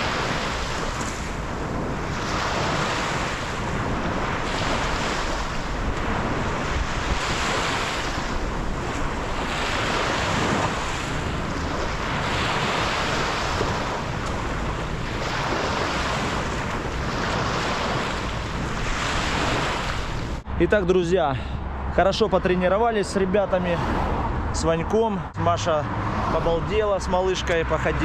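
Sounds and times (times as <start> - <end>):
small waves breaking on shore: 0.0 - 20.4
wind rumbling on microphone: 0.0 - 28.0.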